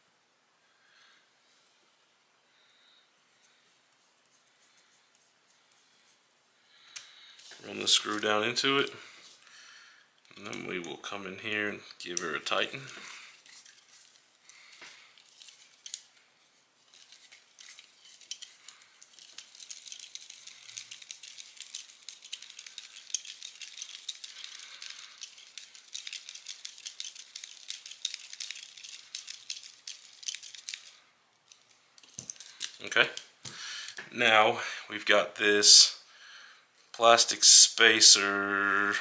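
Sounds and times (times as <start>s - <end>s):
tool and metal parts rattling: 16.9s - 30.9s.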